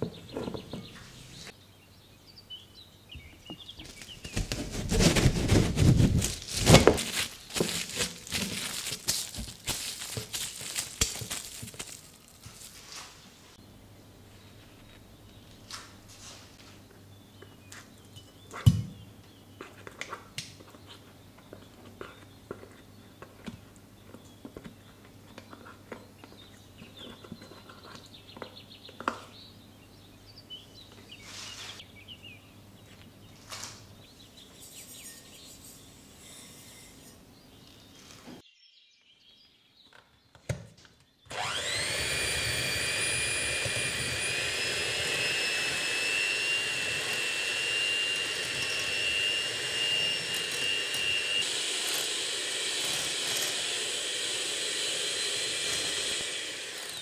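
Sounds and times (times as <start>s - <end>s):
electric hand mixer whining: 41.3s - 57.0s.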